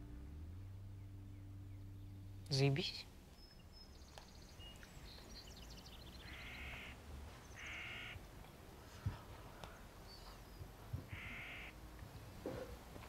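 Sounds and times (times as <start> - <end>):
small birds chirping: 0.8 - 11.8
crow cawing: 6.2 - 7.0, 7.6 - 8.2, 11.1 - 11.8.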